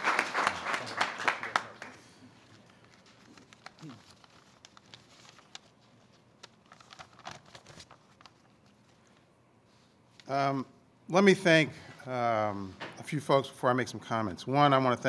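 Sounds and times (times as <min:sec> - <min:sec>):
audience applause: 0:00.0 - 0:02.1
rustling: 0:02.5 - 0:10.2.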